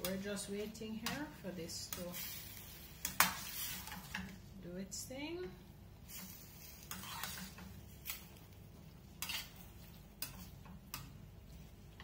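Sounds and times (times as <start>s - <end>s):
metal spatula scraping pan: 6.1s - 7.8s, 9.2s - 10.5s.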